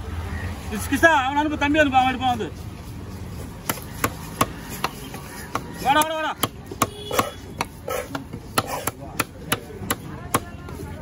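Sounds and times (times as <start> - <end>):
cleaver chopping on wooden block: 3.6 - 10.8.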